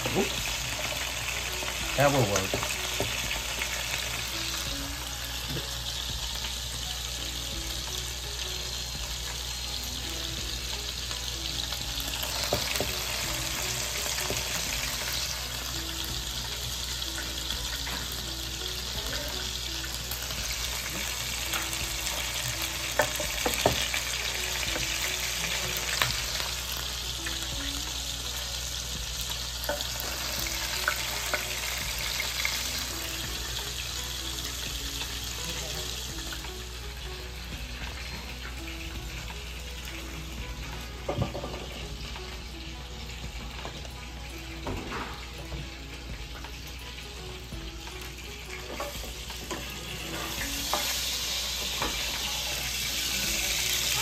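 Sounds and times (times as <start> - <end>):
patties sizzling in a skillet: 0.0 - 54.0.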